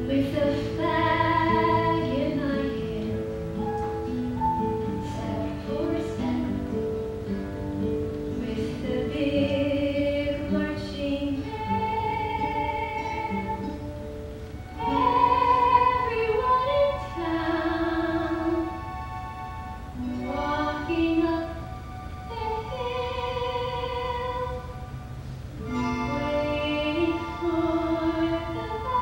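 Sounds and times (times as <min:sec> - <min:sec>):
woman singing a slow ballad: 0:00.0 - 0:03.3, 0:05.0 - 0:06.8, 0:08.3 - 0:13.8, 0:14.8 - 0:18.8, 0:20.2 - 0:21.6, 0:25.7 - 0:29.0
instrumental accompaniment: 0:00.0 - 0:29.0.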